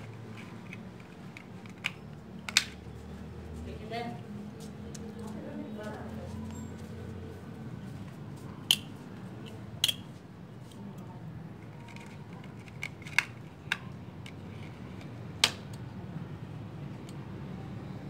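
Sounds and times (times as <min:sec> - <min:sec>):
metal clip clicking and snapping: 0:08.7 - 0:10.1.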